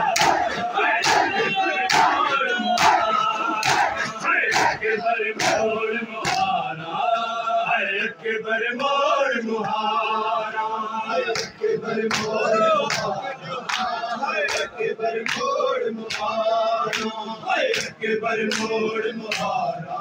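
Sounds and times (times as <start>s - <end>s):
rhythmic chest-beating slaps: 0.0s - 6.7s, 11.2s - 20.0s
men chanting in unison: 0.0s - 20.0s.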